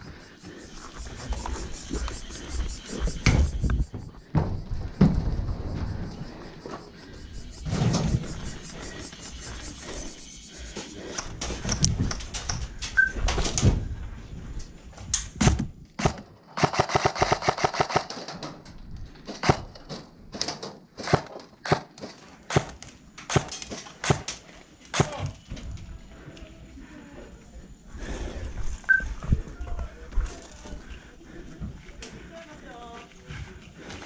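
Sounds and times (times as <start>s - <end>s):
airsoft guns firing: 15.4s - 18.3s, 19.4s - 19.8s, 21.0s - 25.3s.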